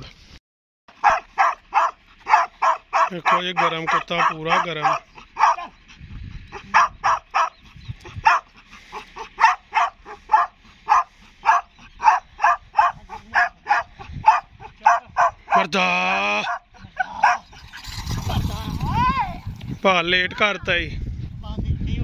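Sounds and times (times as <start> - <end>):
dog yelping: 0.9 - 15.7, 16.4 - 17.8.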